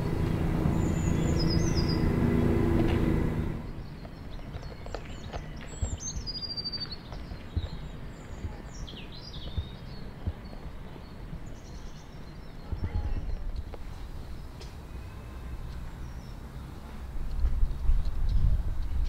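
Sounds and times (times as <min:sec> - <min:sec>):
low background rumble: 0:00.0 - 0:04.4
small birds chirping: 0:00.0 - 0:19.0.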